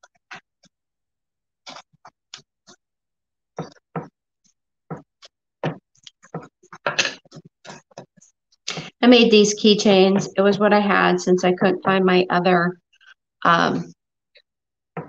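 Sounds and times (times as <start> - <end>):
tape handling taps and scrapes: 3.6 - 8.9.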